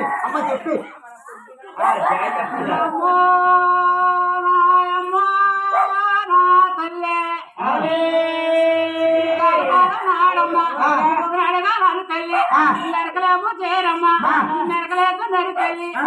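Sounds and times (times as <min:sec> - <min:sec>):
high voice singing without words: 0:02.7 - 0:12.0.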